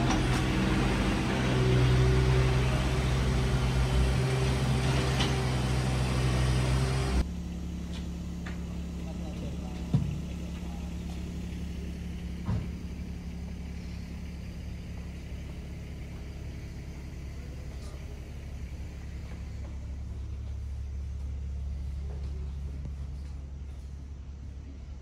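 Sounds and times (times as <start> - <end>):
low mechanical rumble: 0.0 - 25.0.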